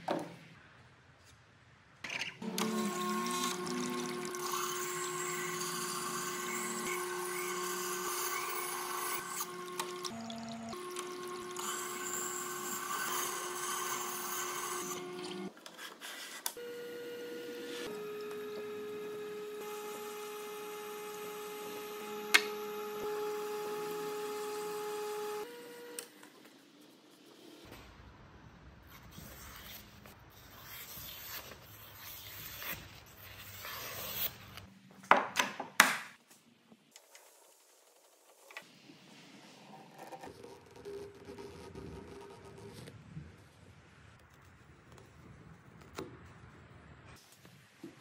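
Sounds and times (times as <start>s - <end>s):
grinder motor hum: 2.4s - 15.5s.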